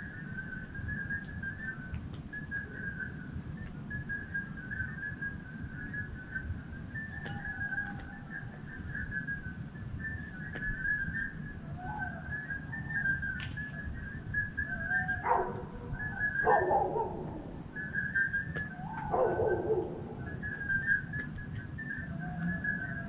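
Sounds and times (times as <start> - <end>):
dog barking: 15.2 - 15.8, 16.4 - 17.4, 19.1 - 20.0.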